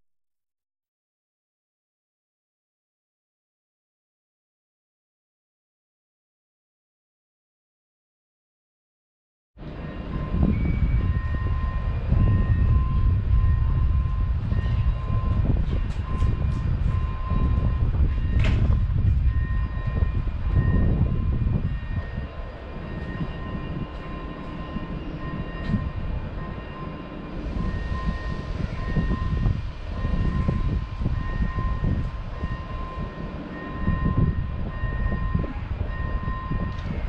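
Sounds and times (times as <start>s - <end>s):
low rumble: 9.6s - 37.0s
train high-pitched whine: 9.6s - 37.0s.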